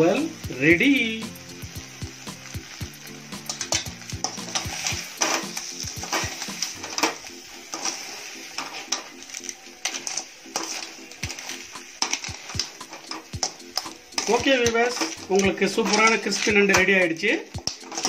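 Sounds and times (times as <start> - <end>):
faint sizzle: 0.0 - 18.0
ladle scraping steel pan: 9.8 - 16.9.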